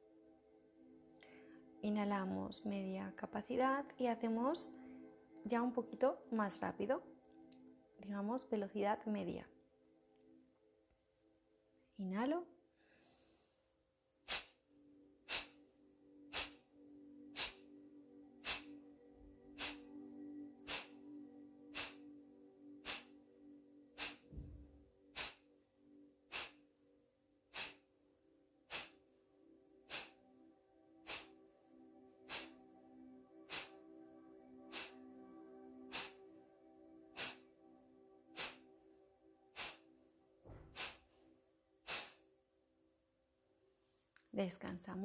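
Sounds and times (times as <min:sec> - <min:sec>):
quiet inhalations: 0:01.2 - 0:01.8, 0:04.7 - 0:05.4, 0:12.6 - 0:26.7, 0:27.5 - 0:28.0, 0:28.6 - 0:30.4, 0:31.0 - 0:34.0, 0:34.6 - 0:35.2, 0:35.8 - 0:37.6, 0:38.3 - 0:42.3
forceful nasal exhalations: 0:14.2 - 0:14.6, 0:15.2 - 0:15.7, 0:16.3 - 0:16.6, 0:17.3 - 0:17.7, 0:18.4 - 0:18.8, 0:19.5 - 0:20.0, 0:20.6 - 0:21.0, 0:21.7 - 0:22.0, 0:22.8 - 0:23.2, 0:24.0 - 0:24.5, 0:25.1 - 0:25.5, 0:26.3 - 0:26.6, 0:27.5 - 0:27.9, 0:28.7 - 0:29.0, 0:29.9 - 0:30.2, 0:31.0 - 0:31.4, 0:32.2 - 0:32.6, 0:33.4 - 0:33.8, 0:34.7 - 0:35.1, 0:35.8 - 0:36.2, 0:37.1 - 0:37.5, 0:38.4 - 0:38.7, 0:39.5 - 0:39.9, 0:40.5 - 0:41.2, 0:41.8 - 0:42.2.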